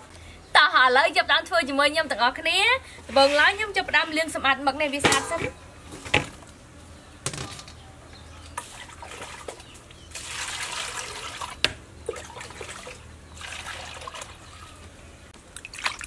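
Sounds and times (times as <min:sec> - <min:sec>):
water sloshing in a metal bowl: 0:08.4 - 0:14.9
water poured into a bowl: 0:10.1 - 0:14.5.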